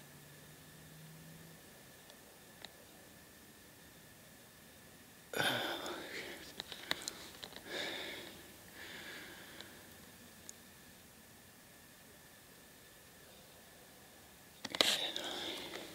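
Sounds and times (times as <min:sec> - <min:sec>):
person whispering: 0:05.4 - 0:07.2, 0:14.7 - 0:15.9
small clicks: 0:14.6 - 0:15.9.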